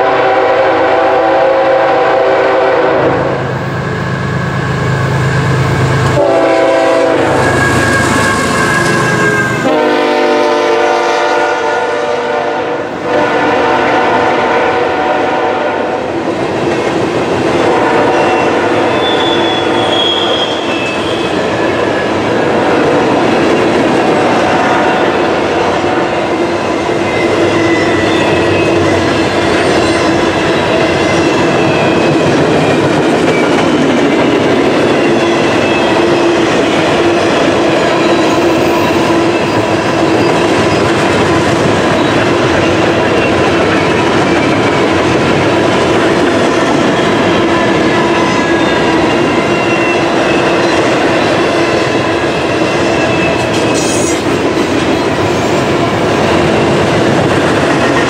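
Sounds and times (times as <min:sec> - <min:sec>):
train horn: 0:00.0 - 0:03.6, 0:06.1 - 0:16.1, 0:17.6 - 0:21.4, 0:24.1 - 0:26.4.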